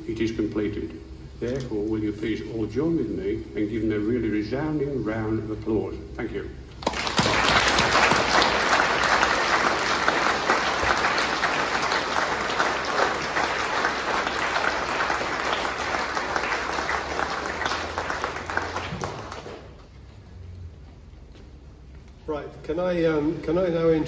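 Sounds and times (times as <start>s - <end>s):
audience applauding: 6.8s - 20.0s.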